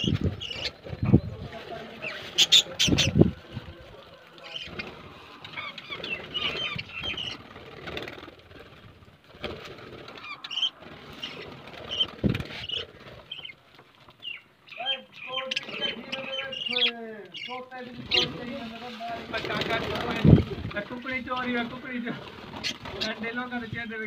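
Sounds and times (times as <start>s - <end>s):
budgerigars chirping: 0.0s - 0.9s, 2.0s - 3.2s, 5.5s - 7.4s, 10.2s - 13.6s, 14.2s - 18.4s
wings flapping: 0.0s - 14.4s, 15.5s - 23.6s.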